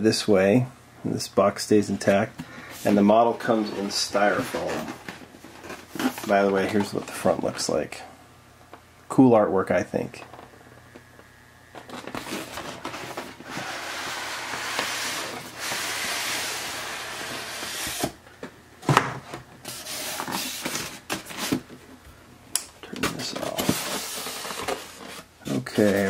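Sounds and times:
cardboard sliding rub: 2.7 - 6.8, 12.1 - 18.2, 19.7 - 21.6
packaging knocks and scrapes: 3.4 - 7.4, 11.8 - 16.6, 18.9 - 21.8, 23.0 - 26.0.

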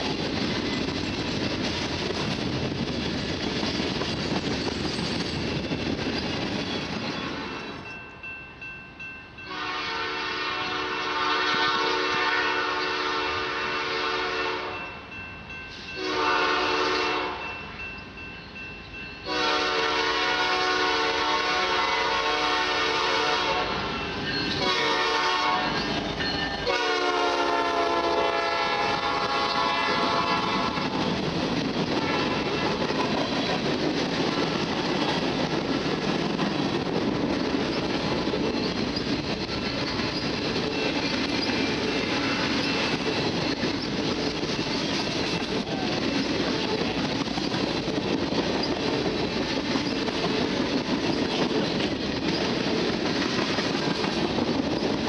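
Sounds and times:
freight cars rolling on rails: 0.0 - 8.8, 21.2 - 55.0
locomotive air horn blasts: 9.5 - 14.8, 16.0 - 17.5, 19.3 - 23.9, 24.6 - 25.8, 26.6 - 31.0, 32.0 - 32.7.

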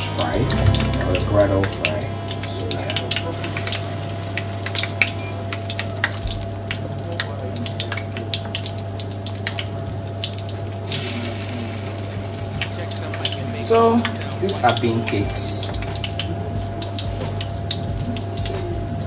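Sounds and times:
steady low hum: 0.0 - 7.2
cakes deep-frying in oil: 0.0 - 19.0.

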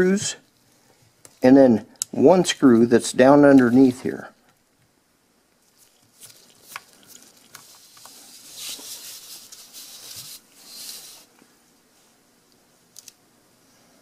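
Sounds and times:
paper rustling: 5.6 - 11.3.

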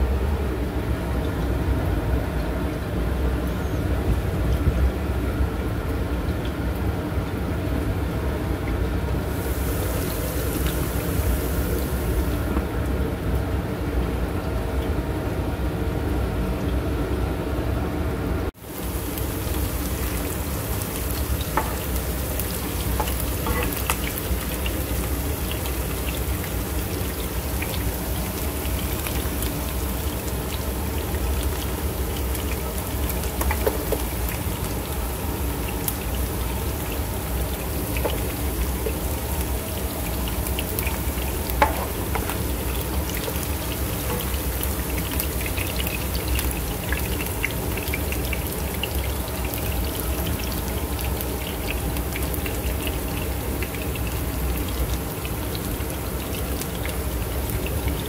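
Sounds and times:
onions sizzling in oil: 9.2 - 12.7, 18.6 - 58.0.

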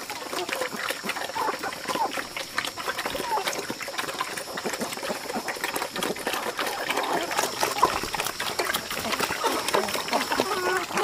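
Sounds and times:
chickens pecking: 0.0 - 11.0
pigs chomping and slurping: 0.0 - 11.0.

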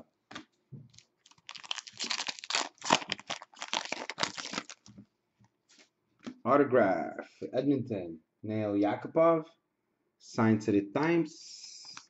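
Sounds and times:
foil wrapper crinkling and tearing: 0.9 - 4.9.

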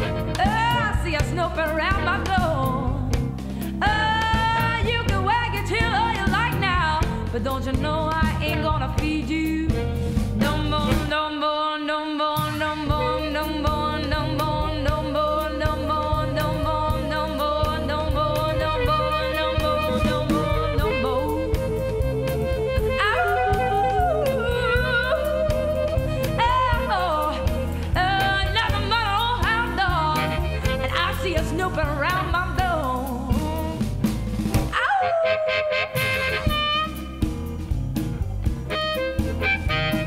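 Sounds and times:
live blues band: 0.0 - 11.2, 12.4 - 40.0
electric guitar solo: 38.7 - 40.0.

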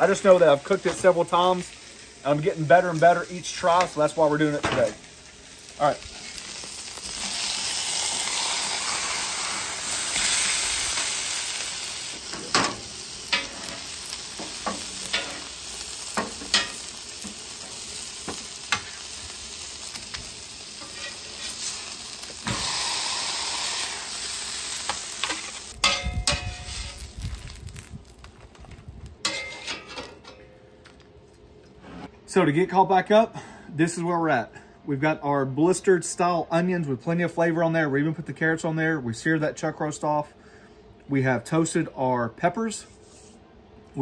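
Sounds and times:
food sizzling on griddle: 0.0 - 28.6.

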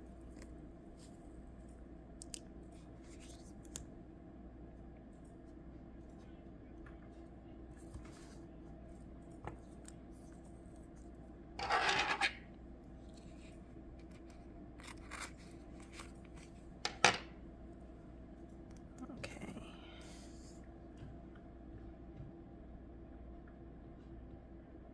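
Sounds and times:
handling of tape and paper: 13.0 - 16.6.

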